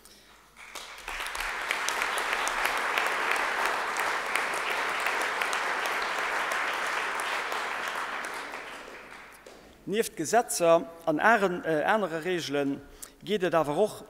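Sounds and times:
audience applauding: 0:00.3 - 0:09.6.

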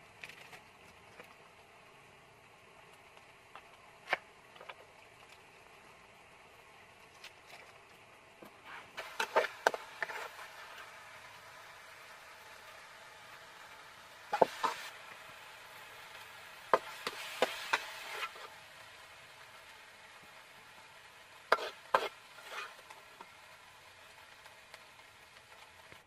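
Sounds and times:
faint steady hiss: 0:00.0 - 0:26.0
metal spoon scraping a wok: 0:08.7 - 0:10.5, 0:16.8 - 0:18.6, 0:21.5 - 0:23.0.

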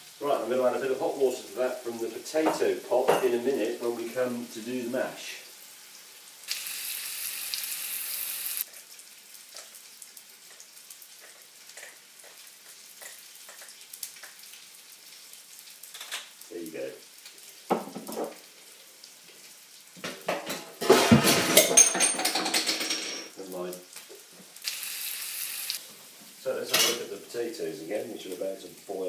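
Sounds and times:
mince and gravy sizzling in a pan: 0:00.0 - 0:21.8, 0:23.1 - 0:29.0
pans knocking: 0:17.7 - 0:18.4, 0:20.0 - 0:23.3.

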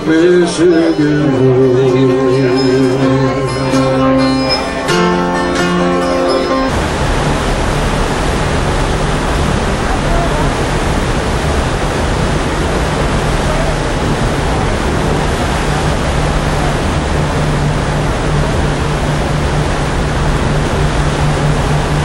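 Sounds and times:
propeller wake churning: 0:00.0 - 0:22.0
ship machinery low hum: 0:00.0 - 0:22.0
wind rushing: 0:06.6 - 0:22.0.

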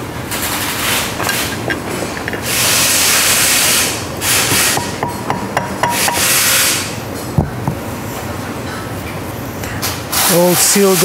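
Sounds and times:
hammer tapping on metal: 0:04.5 - 0:06.8.

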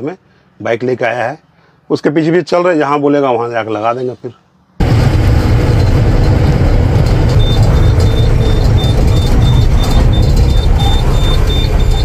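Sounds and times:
truck engine and road noise: 0:03.5 - 0:12.0
short high beeps: 0:07.2 - 0:12.0.

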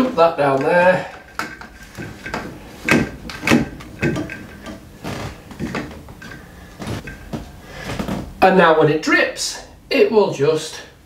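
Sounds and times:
plastic tube knocking and clicking: 0:00.6 - 0:04.8, 0:05.5 - 0:06.4.

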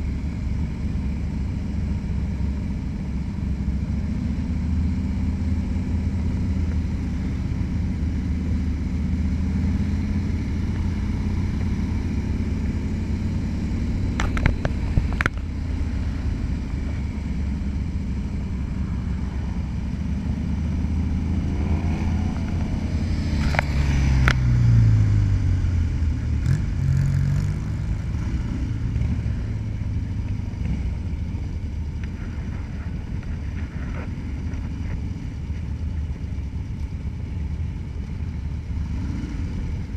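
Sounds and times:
motorcycle engine running: 0:00.0 - 0:39.9
rumbling wind noise: 0:06.2 - 0:38.1.

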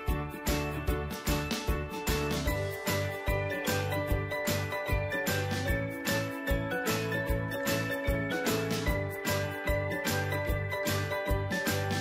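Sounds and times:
bright chiming melody: 0:02.4 - 0:12.0.

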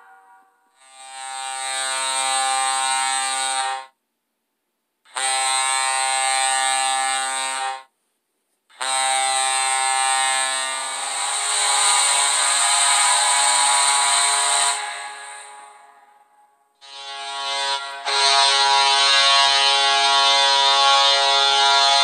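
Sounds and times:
goal horn blasts: 0:16.8 - 0:22.0.

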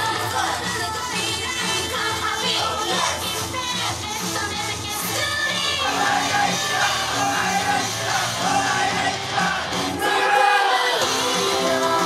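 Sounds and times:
amplified pop backing track: 0:00.0 - 0:12.0
young women singing: 0:00.0 - 0:12.0.

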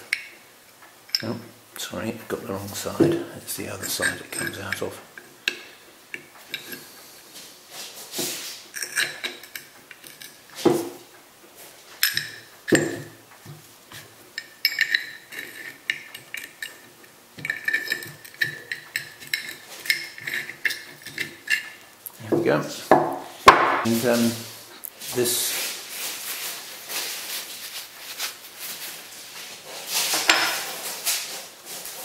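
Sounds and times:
metal parts clinking: 0:03.6 - 0:04.9, 0:08.8 - 0:10.6, 0:12.0 - 0:13.2, 0:13.9 - 0:21.8
loud knocks on metal: 0:22.9 - 0:23.9.

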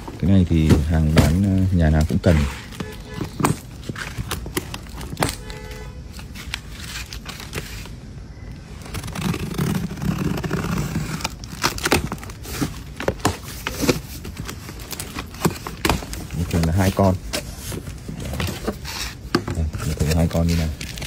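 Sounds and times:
cardboard clicks and knocks: 0:00.1 - 0:05.6, 0:11.5 - 0:21.0
tape scraping and tearing: 0:00.5 - 0:08.0, 0:08.7 - 0:21.0.

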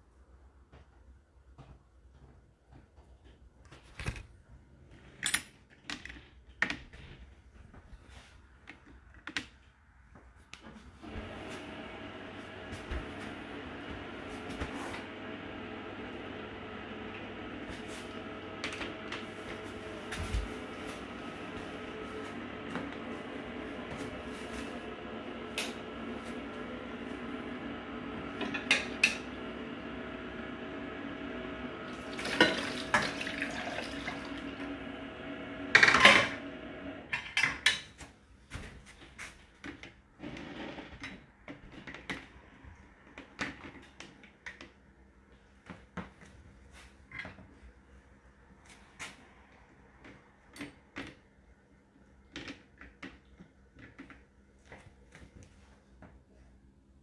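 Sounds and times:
steady hum: 0:11.0 - 0:37.1.

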